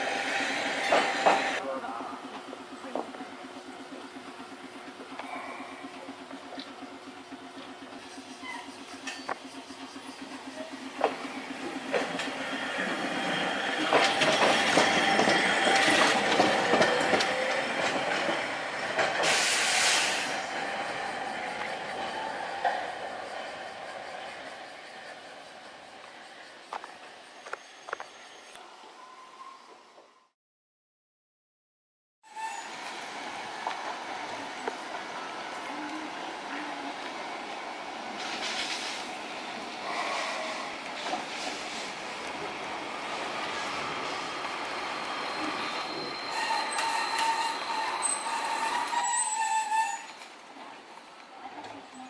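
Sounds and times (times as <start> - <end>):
steady streetcar whine: 0.0 - 30.4, 32.3 - 52.0
wheels clicking over rail joints: 0.8 - 19.5
short hiss burst: 19.2 - 20.4.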